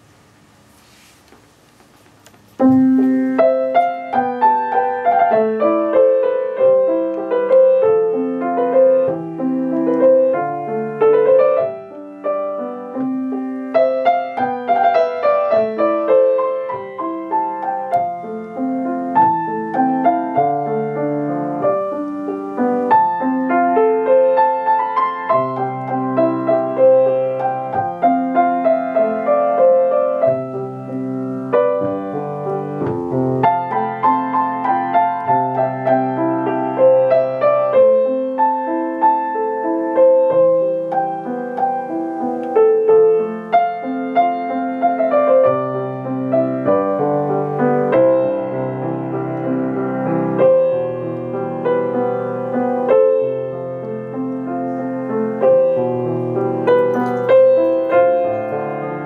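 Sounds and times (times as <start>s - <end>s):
solo piano piece: 0.0s - 59.0s.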